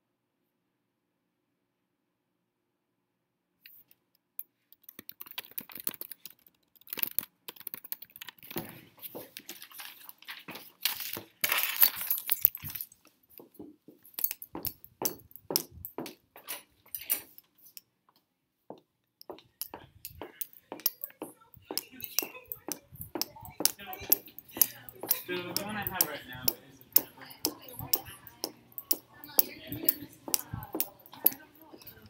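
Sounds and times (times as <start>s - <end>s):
clicks taps and rustling: 3.7s - 32.0s
laptop keyboard typing: 4.8s - 16.5s, 19.2s - 32.0s.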